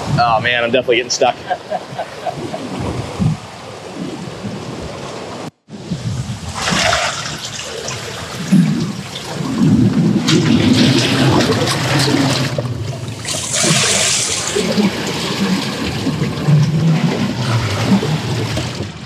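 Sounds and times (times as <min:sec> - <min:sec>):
hissing wave wash: 0:01.2 - 0:16.3
seawater sloshing between boulders: 0:06.4 - 0:19.0.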